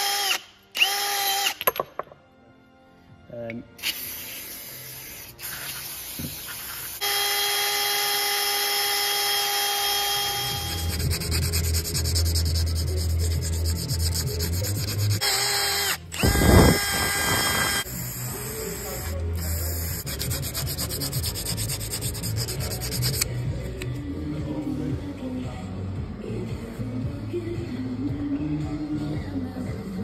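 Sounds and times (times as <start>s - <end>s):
drill grinding metal bore: 7.0s - 11.6s, 12.2s - 21.2s.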